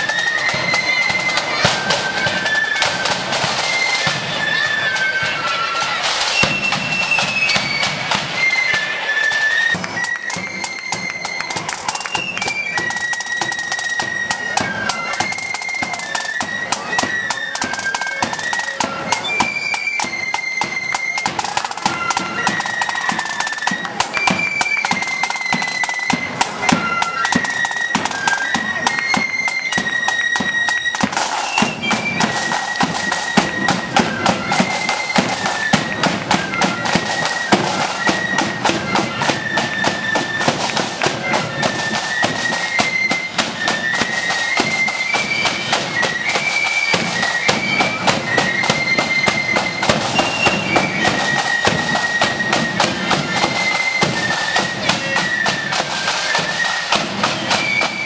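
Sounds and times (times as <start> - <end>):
flutes playing high melody: 0.0 - 58.0
snare drumming: 0.0 - 58.0.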